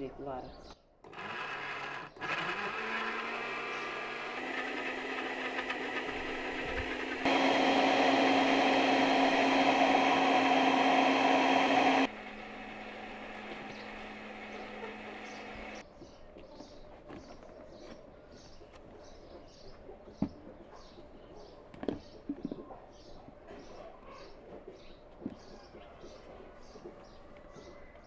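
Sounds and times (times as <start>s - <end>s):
blender running: 1.1s - 15.8s.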